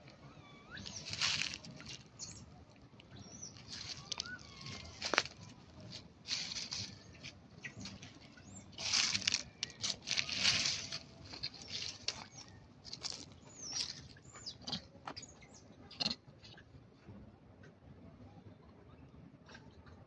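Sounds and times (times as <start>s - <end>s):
monkeys squeaking: 3.1s - 16.2s.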